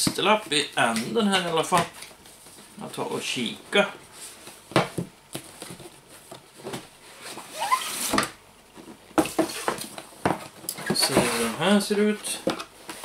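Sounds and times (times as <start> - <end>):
cardboard box scraping and rustling: 11.0 - 11.7.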